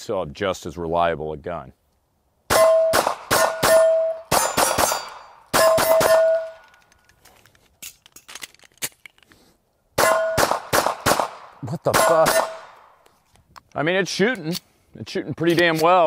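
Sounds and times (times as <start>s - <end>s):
pistol shots: 2.5s - 6.6s, 10.0s - 12.9s
steel plates ringing: 2.5s - 6.8s, 10.0s - 10.4s.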